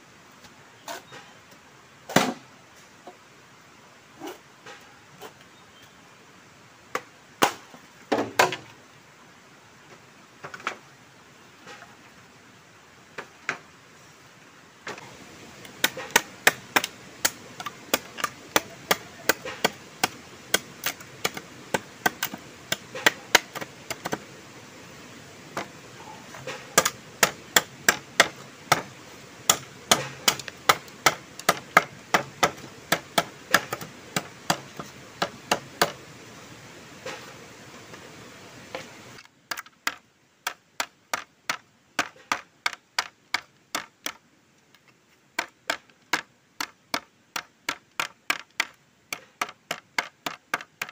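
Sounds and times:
machete chopping bamboo: 0:15.7 - 0:24.2, 0:26.4 - 0:36.0, 0:45.4 - 0:50.9.

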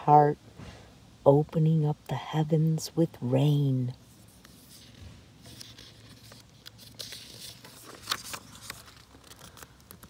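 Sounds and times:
book page turning: 0:04.0 - 0:10.0
stiff paper rustling: 0:04.0 - 0:10.0.

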